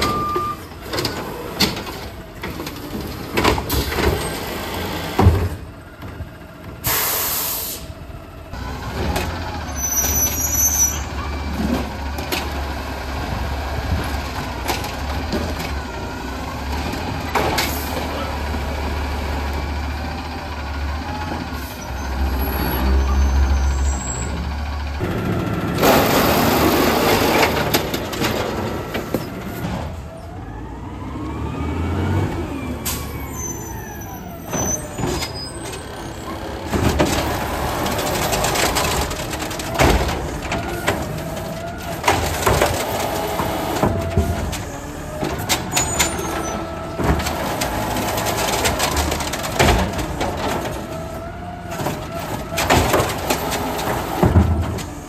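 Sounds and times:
diesel truck engines running: 0:00.0 - 0:55.0
air hissing burst: 0:06.8 - 0:07.9.

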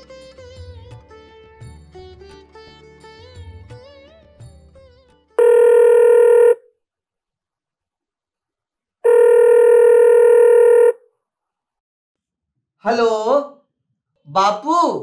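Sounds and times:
telephone ringing: 0:05.4 - 0:06.6, 0:09.0 - 0:11.0.

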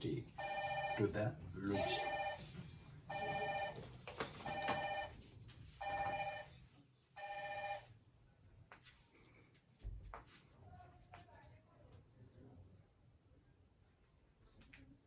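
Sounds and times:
phone ringing: 0:00.3 - 0:05.2, 0:05.8 - 0:06.6, 0:07.2 - 0:08.0.

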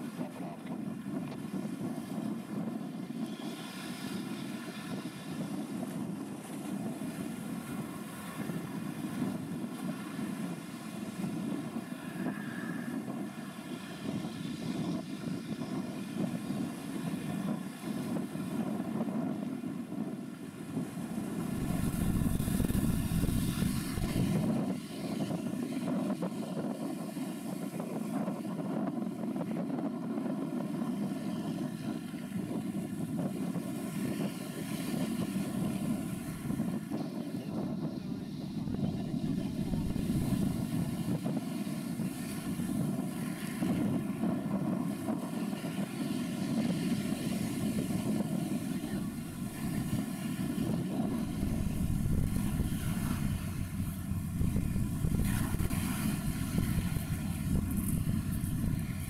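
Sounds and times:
wind buffeting microphone: 0:00.0 - 0:59.0
ship engines droning: 0:21.0 - 0:24.6, 0:48.8 - 0:59.0.

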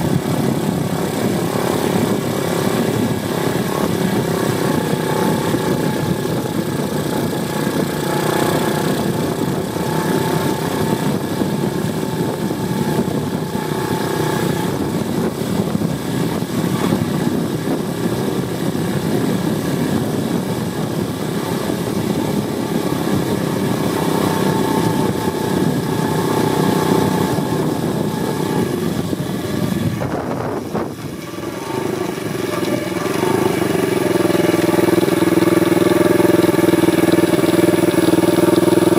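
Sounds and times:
motorbike engine running: 0:00.0 - 0:38.9.

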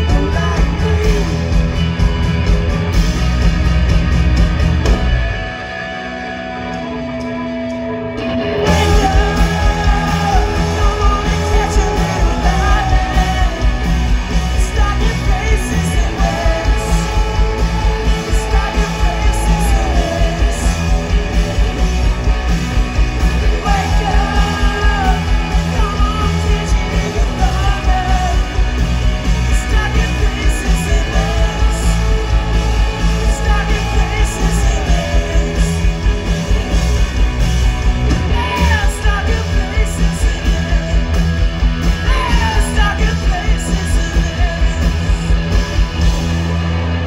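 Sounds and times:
man singing: 0:00.0 - 0:01.9, 0:08.6 - 0:22.2, 0:23.2 - 0:37.2, 0:38.0 - 0:45.5
drums: 0:00.0 - 0:47.0
electric guitar: 0:00.0 - 0:47.0
live rock band: 0:00.0 - 0:47.0.

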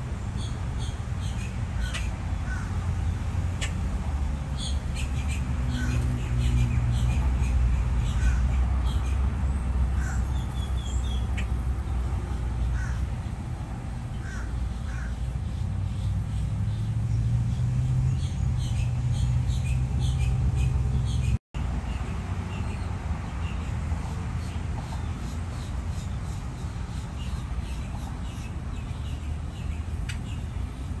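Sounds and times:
grackles calling harshly: 0:04.6 - 0:07.2.

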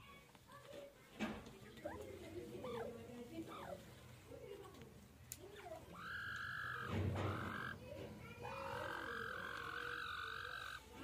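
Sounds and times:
bird calling: 0:01.8 - 0:03.9, 0:05.5 - 0:11.0.

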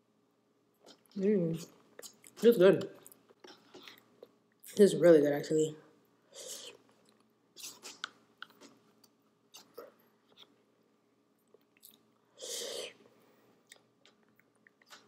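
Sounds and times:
person chewing: 0:01.9 - 0:04.7, 0:06.4 - 0:10.6, 0:11.4 - 0:15.0.

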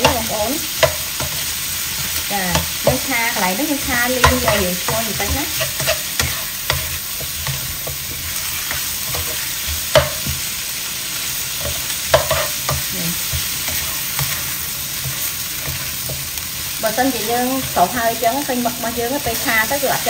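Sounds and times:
spatula scraping and tapping pan: 0:00.0 - 0:10.5, 0:11.6 - 0:16.4
squid sizzling in oil: 0:00.0 - 0:20.0.

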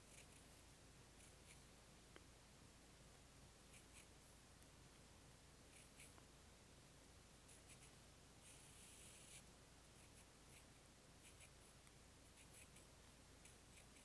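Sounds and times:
pencil scratching on paper: 0:00.0 - 0:00.6, 0:07.5 - 0:14.0.

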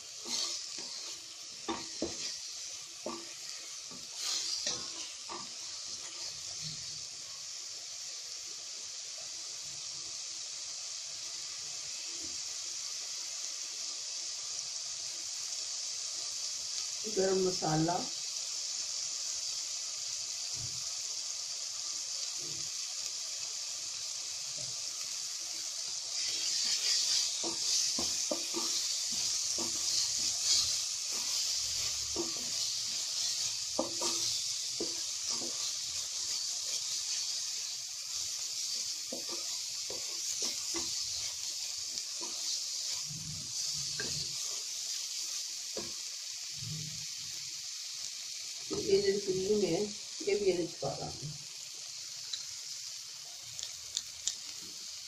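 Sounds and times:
spatula scraping pan: 0:00.0 - 0:06.4, 0:26.2 - 0:44.8
food sizzling in oil: 0:00.0 - 0:55.0.

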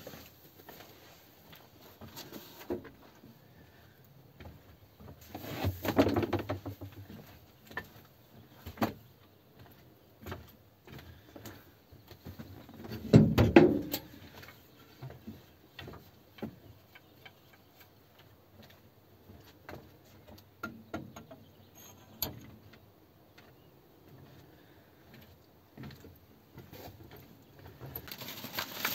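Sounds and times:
rustling and thumps: 0:04.5 - 0:08.0, 0:12.1 - 0:16.7, 0:26.6 - 0:28.9.

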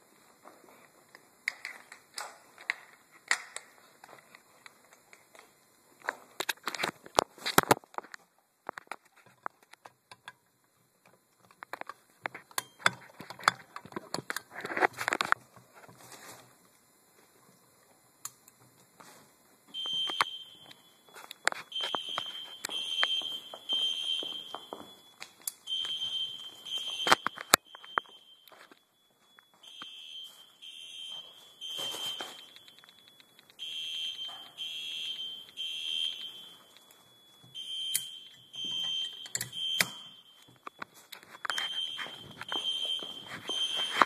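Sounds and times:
fire alarm pulsing tone: 0:17.4 - 0:44.0.

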